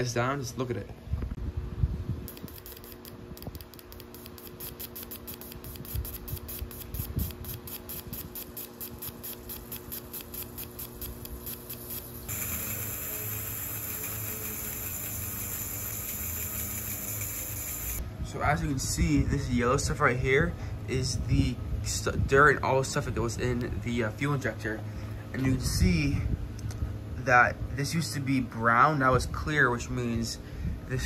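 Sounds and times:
fuel injector spraying: 2.3s - 18.0s.

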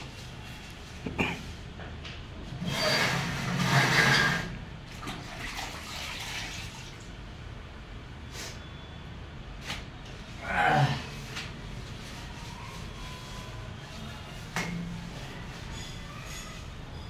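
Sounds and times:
water sloshing in a plastic bucket: 4.8s - 7.1s.

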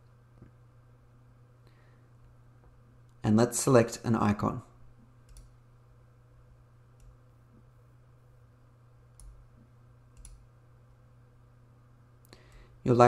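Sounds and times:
steady low hum: 0.0s - 13.0s
computer mouse clicks: 5.2s - 5.6s, 9.1s - 9.4s, 10.1s - 10.4s.

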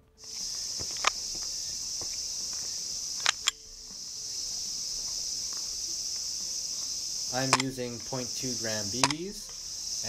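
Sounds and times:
insects droning: 0.0s - 10.0s
sharp plastic clicks: 0.3s - 1.2s, 3.2s - 3.6s, 7.3s - 9.6s.

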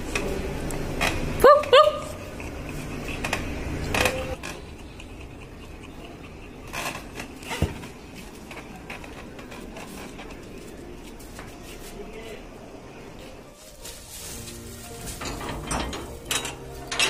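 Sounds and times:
dog high yelps: 1.4s - 2.2s
soft scuffling: 13.2s - 15.2s.

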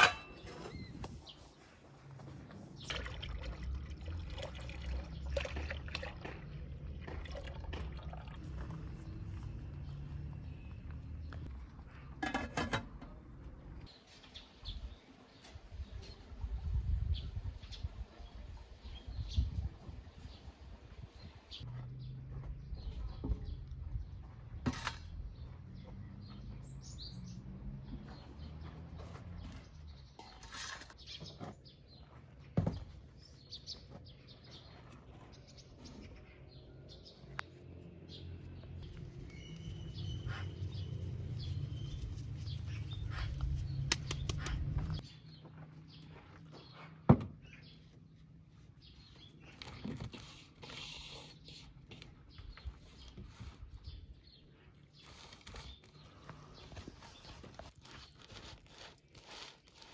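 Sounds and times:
water pouring from a jug: 2.9s - 8.7s
birds chirping: 13.1s - 58.4s.

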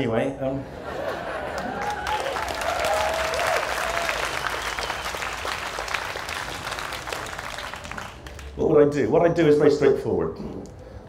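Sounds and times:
audience applauding: 1.0s - 8.6s.

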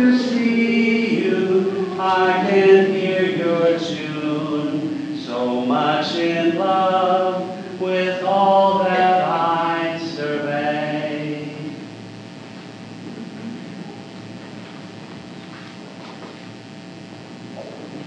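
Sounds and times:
voices singing a slow hymn: 0.0s - 12.1s.

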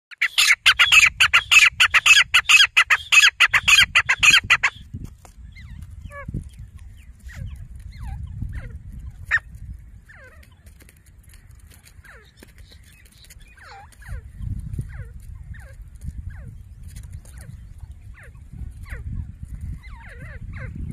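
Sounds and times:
bird calling harsh repeated notes: 0.1s - 4.9s.

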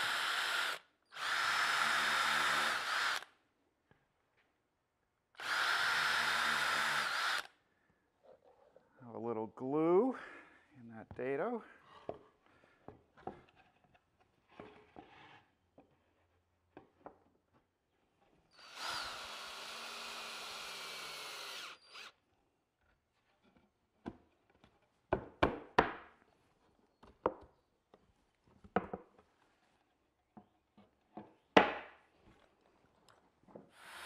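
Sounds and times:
power drill driving a screw: 0.0s - 3.3s, 5.4s - 7.5s, 18.6s - 22.2s, 33.8s - 34.0s.

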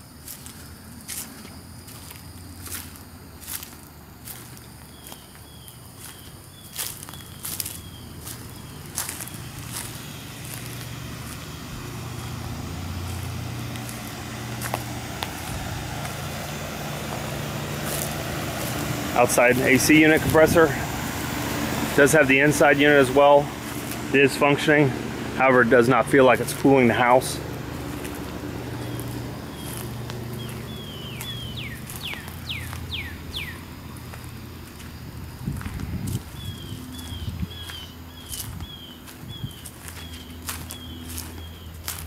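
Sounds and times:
air conditioner unit humming: 0.0s - 42.0s
bird whistling descending notes: 30.4s - 33.7s.

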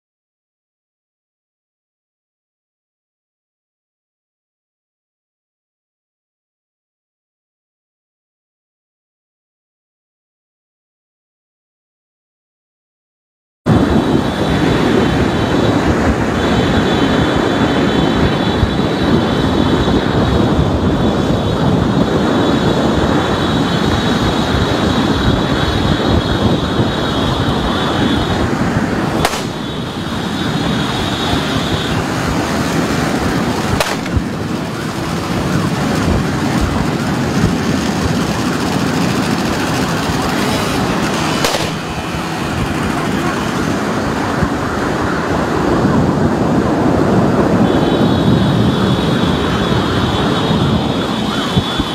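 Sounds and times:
wind and road noise: 13.7s - 51.9s.

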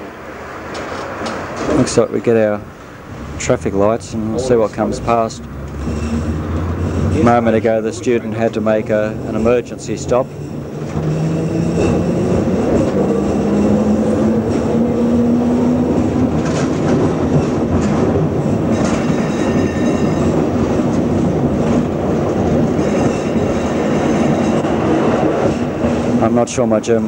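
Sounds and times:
tram motor whine: 0.0s - 26.8s
wheels rumbling on rail: 0.0s - 27.0s
thin high squeal: 9.3s - 12.3s.

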